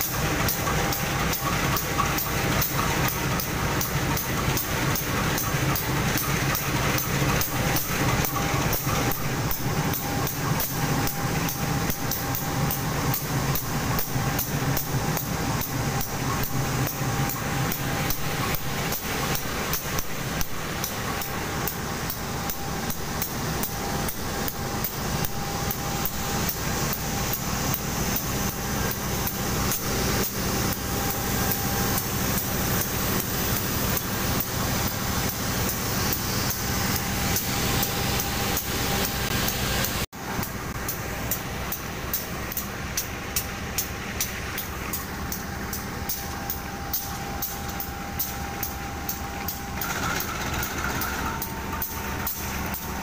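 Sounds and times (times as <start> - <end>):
locomotive engine hum: 0.0 - 53.0
thin steady whine: 0.0 - 53.0
fast knocking clatter: 49.8 - 51.5.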